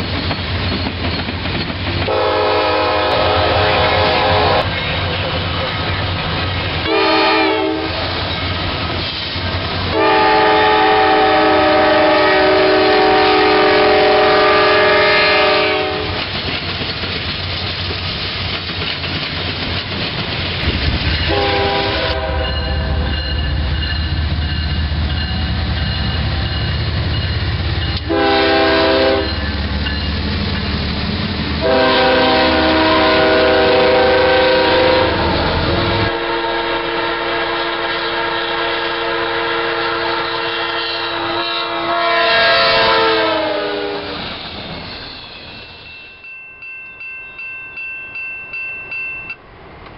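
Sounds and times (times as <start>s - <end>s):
freight train rumble and wheel clatter: 0.0s - 49.9s
locomotive air horn blasts: 2.1s - 4.7s, 6.8s - 8.0s, 9.9s - 16.2s, 21.3s - 23.1s, 28.0s - 29.4s, 31.6s - 44.2s.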